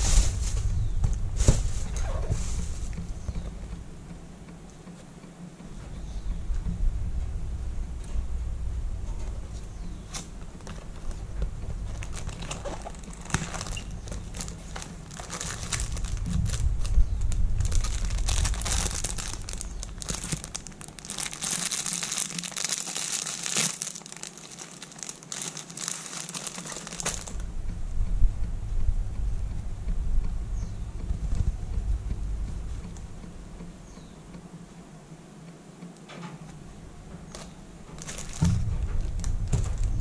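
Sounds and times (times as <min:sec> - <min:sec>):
plastic wrapping crinkling: 0:00.0 - 0:03.2, 0:10.1 - 0:27.4, 0:37.2 - 0:40.0.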